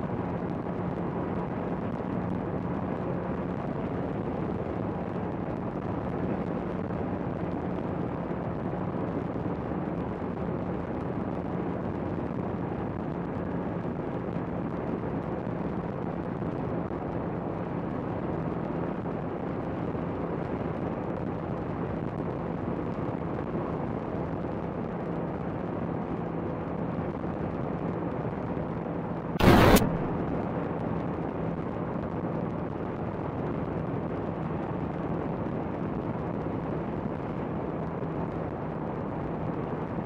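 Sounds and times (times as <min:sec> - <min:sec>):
loud burst of noise: 0:29.4 - 0:31.2.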